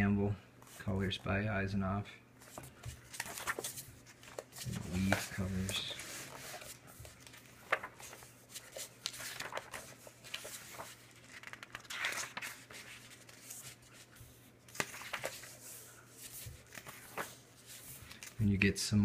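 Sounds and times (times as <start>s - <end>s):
paper pages rustling: 2.4s - 18.5s.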